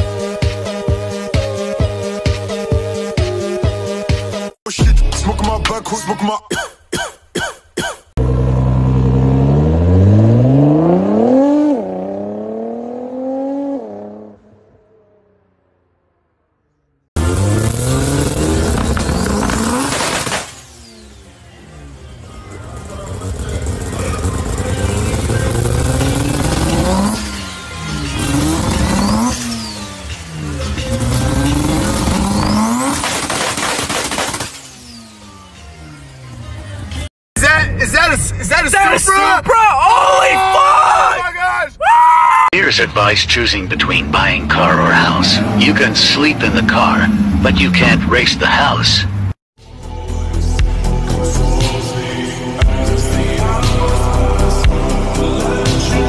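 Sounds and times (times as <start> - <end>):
car engine accelerating hard: 8.2 - 15.9, 17.2 - 37.1, 43.1 - 49.4
car engine idling: 20.5 - 32.7.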